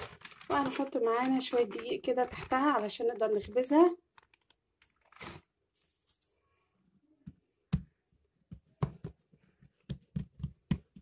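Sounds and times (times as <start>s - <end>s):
hands patting dough: 7.7s - 11.0s.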